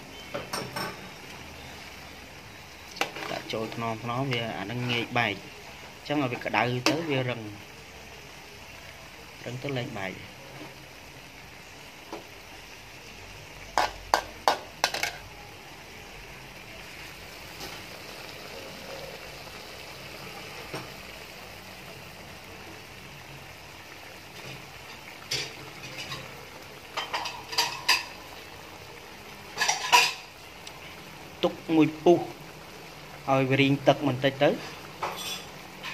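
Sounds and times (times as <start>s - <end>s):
squid sizzling: 0.0s - 35.9s
metal spatula scraping wok: 2.9s - 3.8s, 29.6s - 30.3s, 34.5s - 35.9s.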